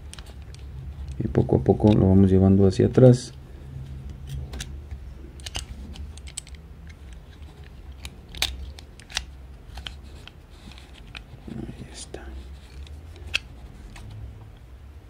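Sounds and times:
pistol slide clicking and scraping: 0:05.4 - 0:11.3, 0:12.6 - 0:14.2.

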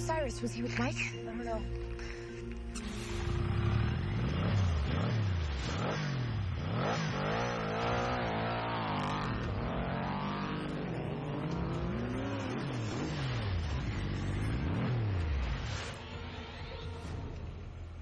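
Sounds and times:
motorcycle engine revving: 0:02.8 - 0:16.0.

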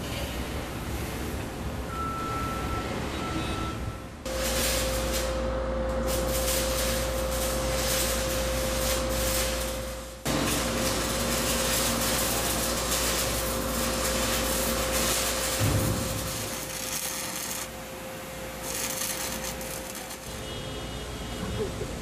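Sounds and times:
industrial machine noise: 0:04.2 - 0:22.0
loud hiss: 0:04.3 - 0:05.4, 0:06.0 - 0:20.9.

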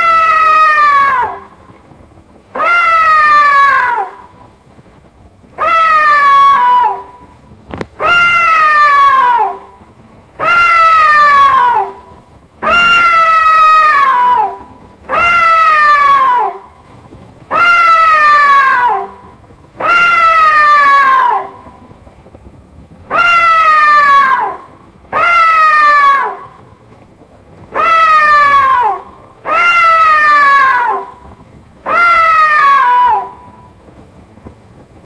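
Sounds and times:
cat meowing: 0:12.6 - 0:16.6, 0:27.7 - 0:31.1.

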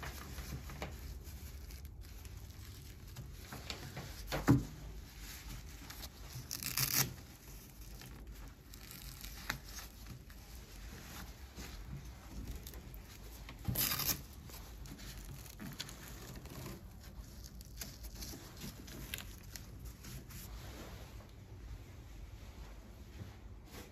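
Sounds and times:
fabric straps rustling: 0:00.0 - 0:23.9
velcro strap tearing: 0:06.1 - 0:10.4, 0:12.4 - 0:19.6.

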